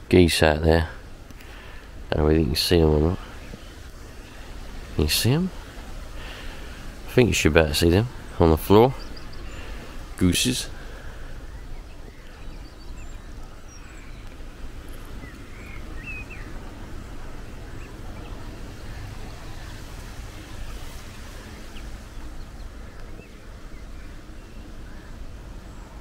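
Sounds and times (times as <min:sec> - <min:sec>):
wind rumbling on microphone: 0:01.0 - 0:26.0
faint bird chirps: 0:08.1 - 0:26.0.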